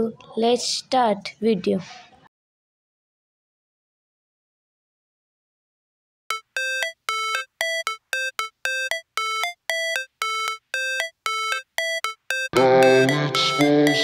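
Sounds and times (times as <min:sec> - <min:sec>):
electronic note melody: 0:06.3 - 0:14.0
music track with deep bass: 0:06.3 - 0:14.0.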